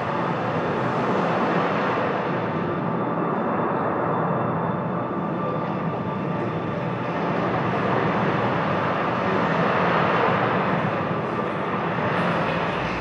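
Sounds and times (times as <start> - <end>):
rushing electronic drone: 6.0 - 13.0.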